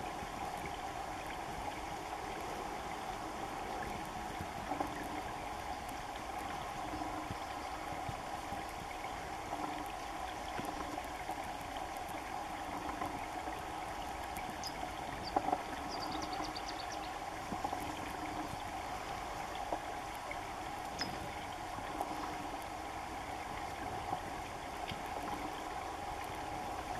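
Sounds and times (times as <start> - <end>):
running water: 0.0 - 26.9
faint bird chirps: 14.6 - 17.1.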